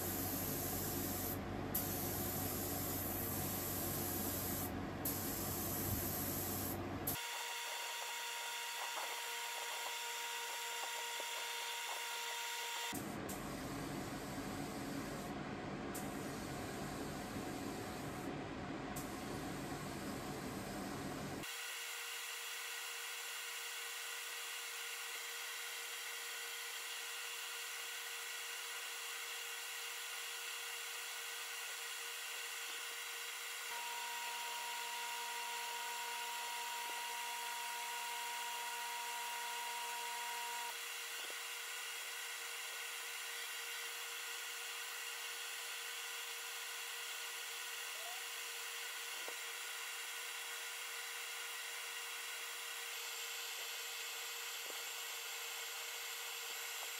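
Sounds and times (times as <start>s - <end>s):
spray gun air hiss: 0.0s - 15.3s, 16.0s - 18.3s.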